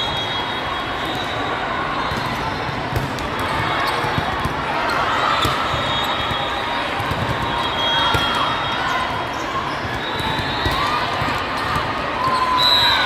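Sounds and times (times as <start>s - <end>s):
many voices chattering: 0.0s - 13.0s
sneakers squeaking on floor: 4.9s - 13.0s.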